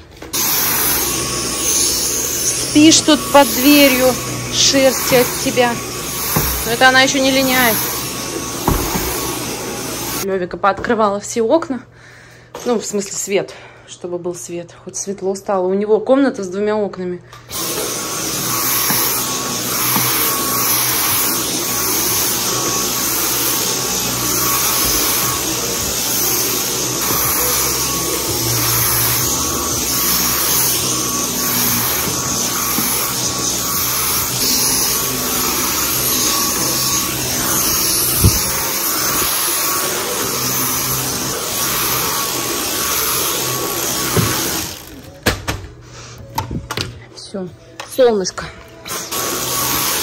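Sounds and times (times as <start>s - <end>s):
vacuum cleaner running: 0.0s - 10.3s, 17.4s - 45.2s, 48.8s - 50.0s.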